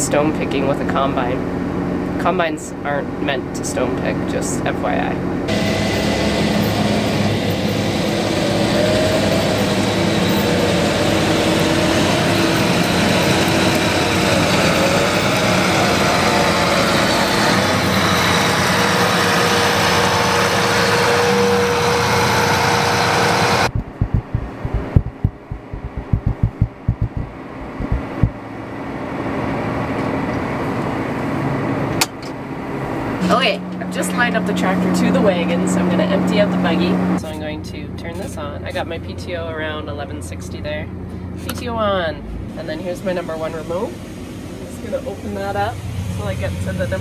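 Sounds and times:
tractor engine and machinery: 5.2 - 23.9
low thumps: 23.7 - 28.4.

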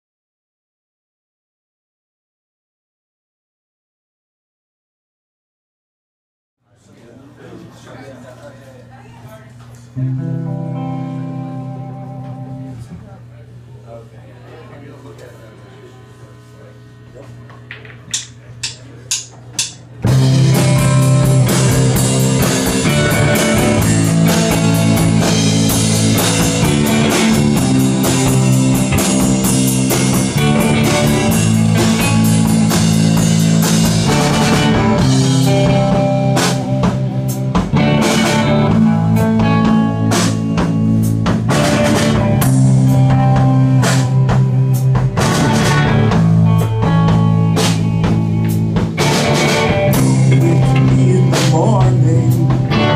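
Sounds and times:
live rock band playing: 9.9 - 13.0, 19.6 - 52.9.

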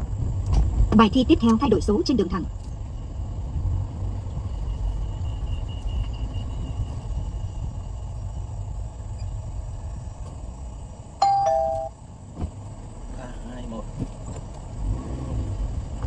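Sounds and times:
car engine and tyres rumbling: 0.0 - 16.0
two-note electronic chime: 11.2 - 12.0.

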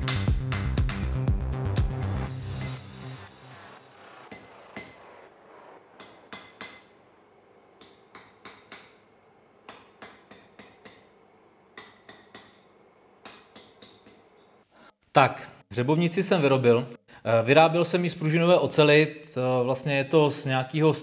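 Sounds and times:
hammer striking steel on anvil: 0.0 - 1.1, 2.5 - 2.8, 4.2 - 7.0, 7.8 - 14.6.

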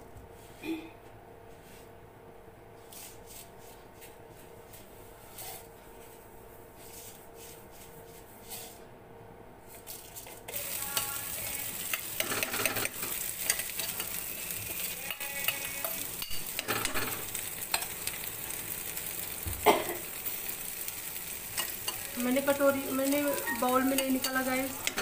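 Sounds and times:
spatula scraping and stirring: 6.8 - 8.9, 9.7 - 19.4, 20.0 - 25.0
paste sizzling in hot oil: 10.5 - 25.0.

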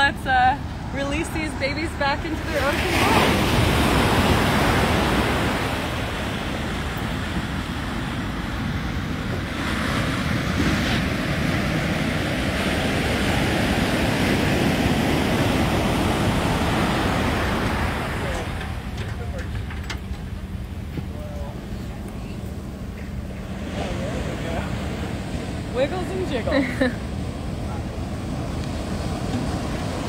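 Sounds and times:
ocean surf: 0.0 - 30.0.

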